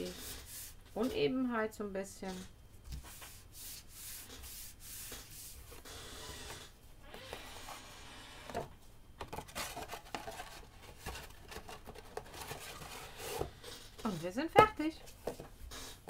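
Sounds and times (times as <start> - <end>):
hands rubbing cardstock on table: 2.9 - 5.8.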